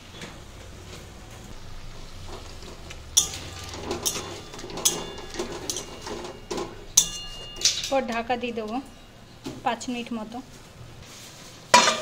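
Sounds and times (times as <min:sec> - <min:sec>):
faint low hum: 0:00.0 - 0:11.1
metal spatula scraping a pan: 0:01.7 - 0:09.4.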